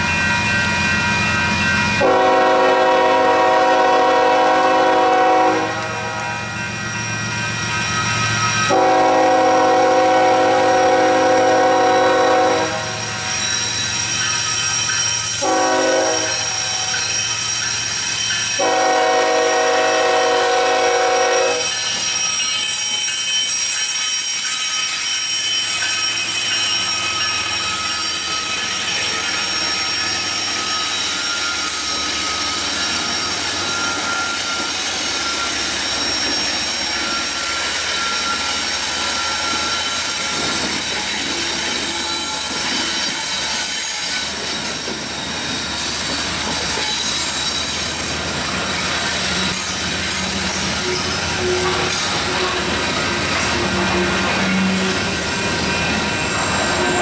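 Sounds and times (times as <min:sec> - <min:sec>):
diesel locomotives rumbling past: 0:00.0 - 0:57.0
train wheels squealing on rail: 0:00.0 - 0:57.0
locomotive horn: 0:02.0 - 0:06.4, 0:08.7 - 0:13.2, 0:15.4 - 0:16.9, 0:18.6 - 0:21.7, 0:50.9 - 0:52.6.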